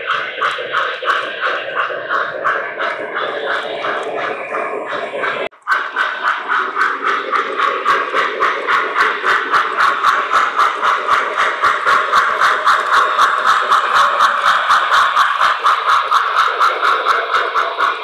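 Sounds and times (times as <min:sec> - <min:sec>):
model steam locomotive chuffing: 0:00.0 - 0:18.0.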